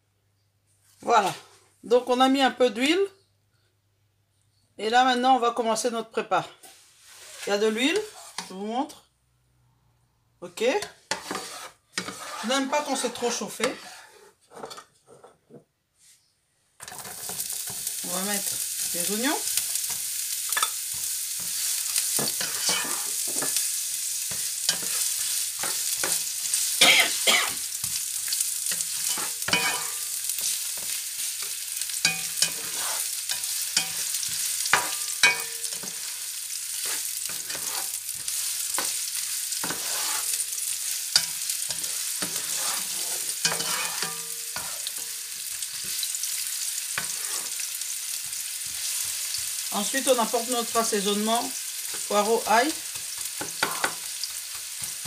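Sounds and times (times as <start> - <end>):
spatula scraping a pan: 6.6 - 8.6, 10.8 - 15.4, 16.8 - 51.2, 52.8 - 55.0
onions sizzling in hot oil: 16.8 - 55.0.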